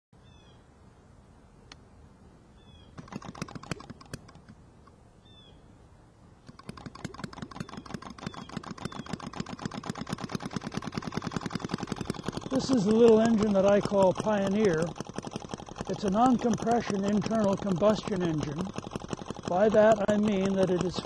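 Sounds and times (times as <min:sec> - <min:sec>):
birds chirping: 0:00.2 - 0:00.7, 0:02.5 - 0:03.2, 0:05.2 - 0:06.4, 0:07.3 - 0:09.5, 0:11.5 - 0:14.9
model engine ticking: 0:03.0 - 0:04.4, 0:06.5 - 0:21.0.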